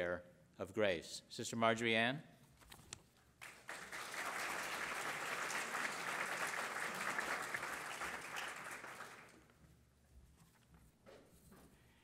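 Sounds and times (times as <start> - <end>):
audience applauding: 3.4 - 9.5.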